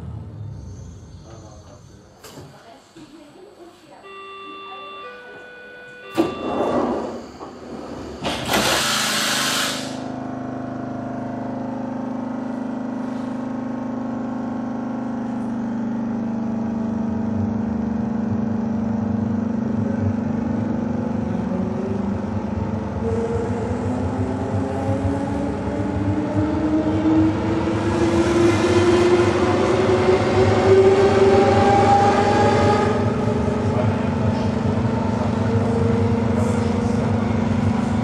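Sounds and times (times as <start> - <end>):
compressed-air hiss: 8.6 - 10.0.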